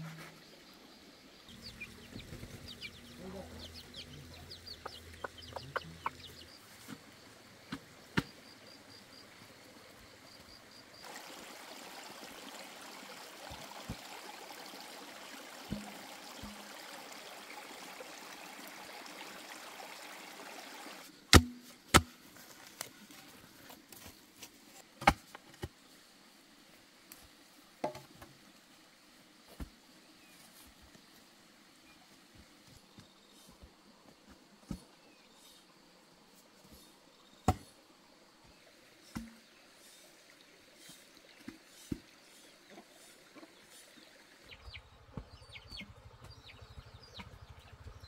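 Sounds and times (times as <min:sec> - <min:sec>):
steady outdoor hiss: 0:00.0 - 0:48.0
bamboo poles knocking: 0:21.3 - 0:22.2, 0:27.8 - 0:28.1, 0:39.1 - 0:39.4.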